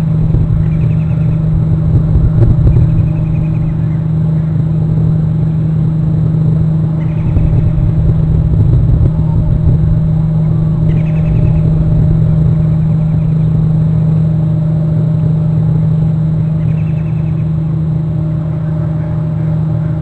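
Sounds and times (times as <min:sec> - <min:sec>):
high trilling bird calls: 0:00.0 - 0:01.6, 0:02.5 - 0:04.8, 0:06.8 - 0:08.0, 0:10.0 - 0:14.3, 0:16.4 - 0:20.0
low rumble and hum: 0:00.0 - 0:20.0.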